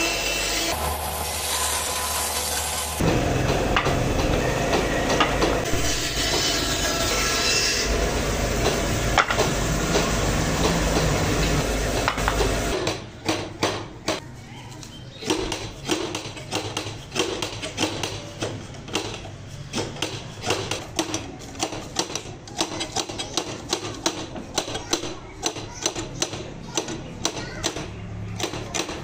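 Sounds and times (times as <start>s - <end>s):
tools knocking on wood: 3.0s - 5.7s, 8.6s - 14.2s.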